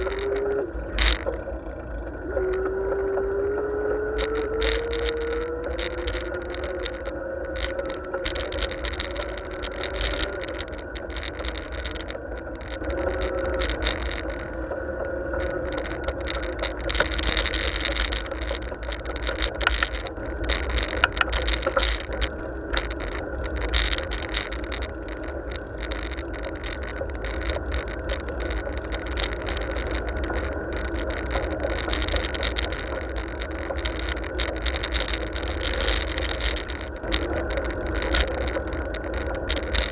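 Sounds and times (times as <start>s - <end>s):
bicycle rattling over road: 0.0s - 39.9s
steady hum: 0.0s - 39.9s
wind rumble on microphone: 0.0s - 39.9s.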